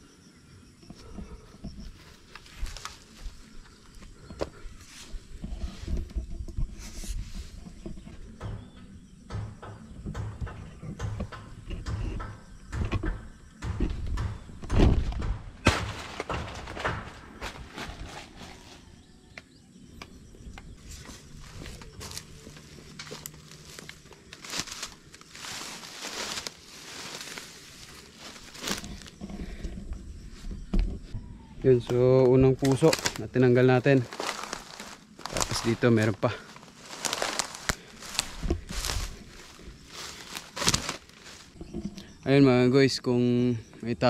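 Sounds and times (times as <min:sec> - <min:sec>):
plant leaves rustling and snapping: 0:02.2 - 0:03.3, 0:21.1 - 0:29.2, 0:31.8 - 0:41.6.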